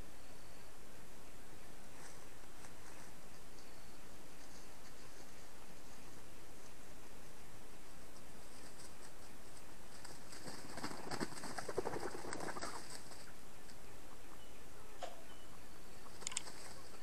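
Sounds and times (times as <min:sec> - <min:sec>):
rooster wings flapping: 0:09.9 - 0:13.3, 0:16.1 - 0:17.0.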